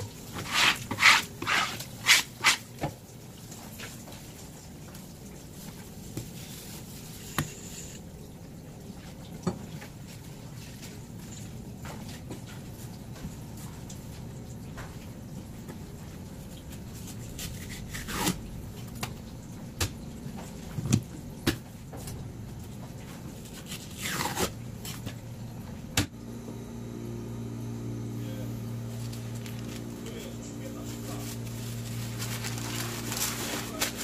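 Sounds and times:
brushing swipes on cutting board: 0.4 - 2.7.

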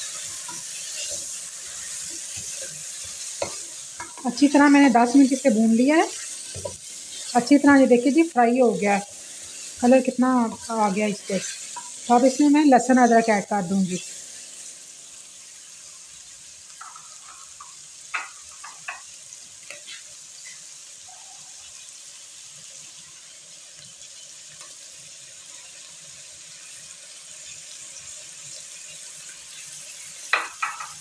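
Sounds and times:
pot boiling and bubbling: 0.0 - 15.0, 16.0 - 21.7
meat sizzling in oil: 0.0 - 31.0.

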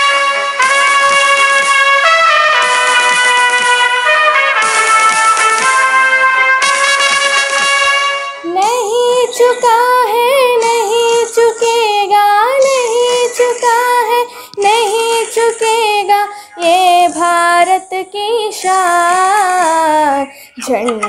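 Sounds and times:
singer breathing: 14.3 - 14.6, 16.3 - 16.6, 20.3 - 20.6.

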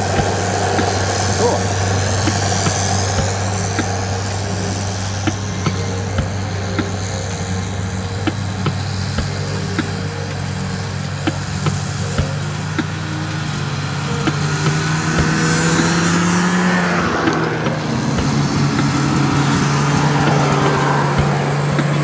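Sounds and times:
vehicle engine idling: 0.0 - 22.0.

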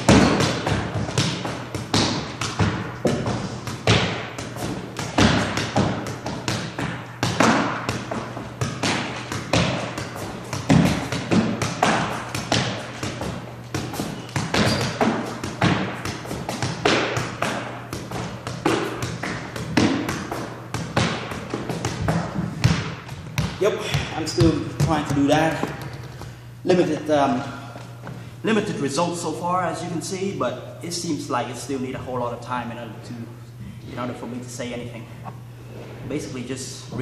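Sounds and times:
foot striking soccer ball: 0.0 - 26.4.

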